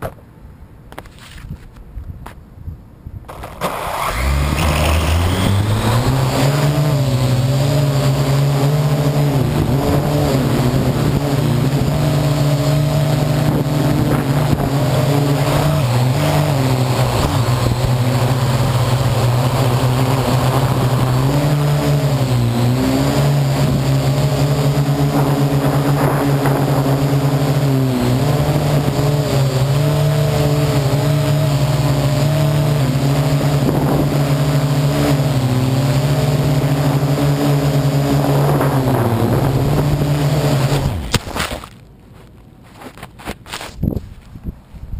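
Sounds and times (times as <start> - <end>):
drone motors buzzing: 3.3 - 41.2.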